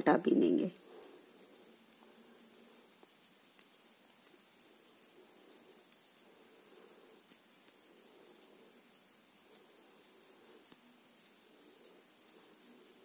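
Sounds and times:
faint low hum: 0.0s - 13.0s
knitting needles clicking: 0.3s - 13.0s.

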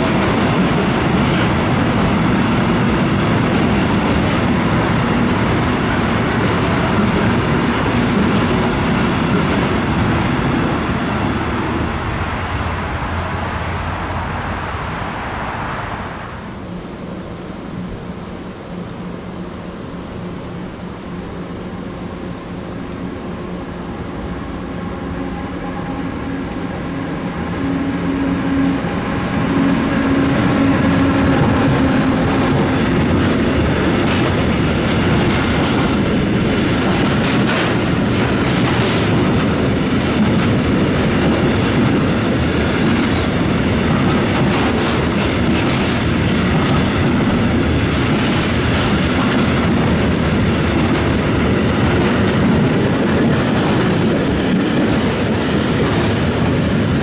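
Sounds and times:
train wheels clickety-clack: 0.0s - 11.4s, 28.6s - 57.0s
electric locomotive humming: 0.0s - 57.0s.

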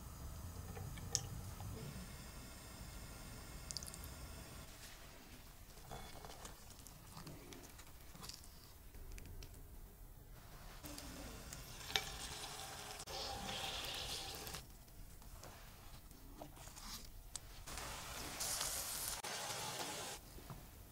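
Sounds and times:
deep-frying sizzle: 17.7s - 20.2s.

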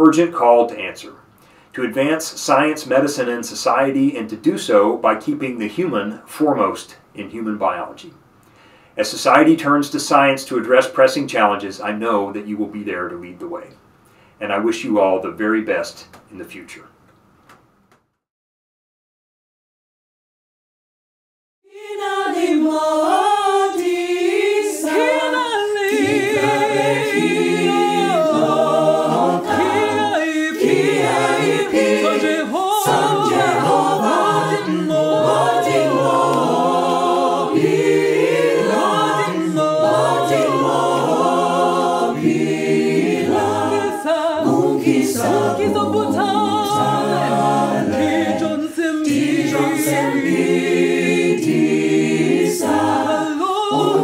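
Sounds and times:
a cappella group singing: 21.7s - 54.0s.

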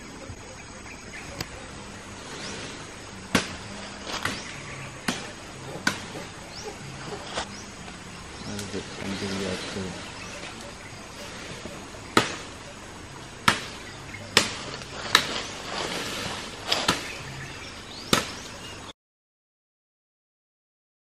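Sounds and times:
machete chopping branches: 3.3s - 7.6s, 11.4s - 12.6s, 13.4s - 17.3s, 17.9s - 18.7s.

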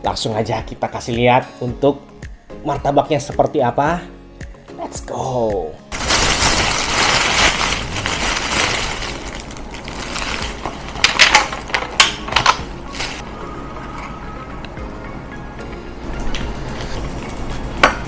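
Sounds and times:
plastic bag rustling: 5.9s - 11.8s, 12.9s - 13.2s
plastic packets crackling: 5.9s - 13.2s.

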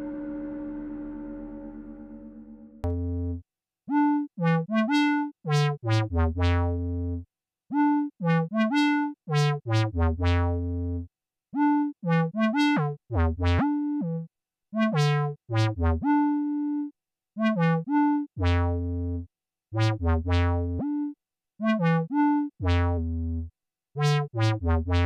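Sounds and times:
synthesizer melody: 0.0s - 3.2s.

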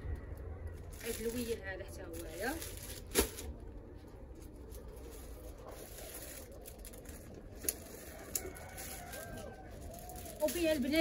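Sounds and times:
low hum: 0.0s - 10.4s
plastic-bagged garment rustling: 0.7s - 11.0s.

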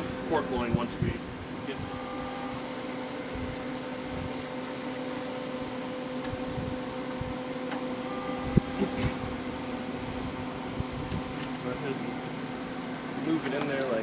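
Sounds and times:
smoker fan humming: 0.0s - 14.0s.

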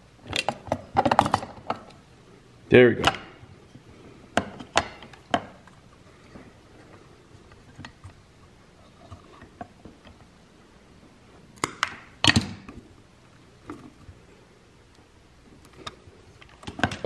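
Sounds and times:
wires and parts clicking: 11.5s - 14.2s, 14.8s - 17.0s.

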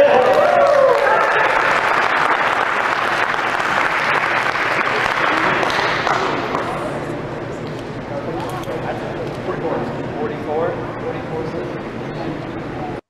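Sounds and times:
spectators clapping: 0.0s - 6.9s.

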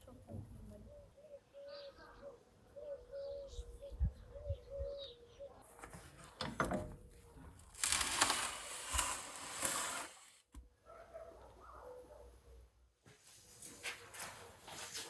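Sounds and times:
dove cooing: 0.9s - 5.6s
metal tray scraping on stone: 7.7s - 10.4s.

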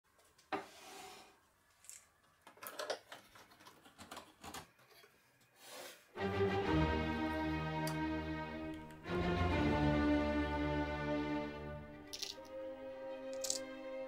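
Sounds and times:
bowed string music: 6.2s - 14.0s.

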